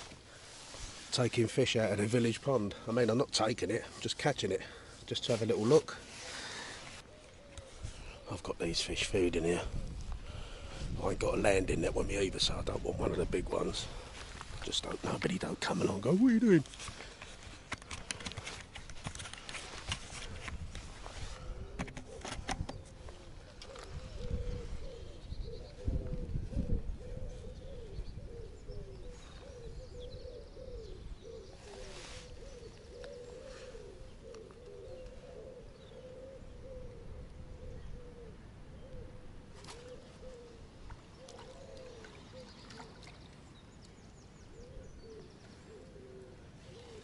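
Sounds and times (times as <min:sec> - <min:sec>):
pigeons cooing: 0:05.8 - 0:14.2, 0:21.3 - 0:43.2, 0:44.4 - 0:47.0.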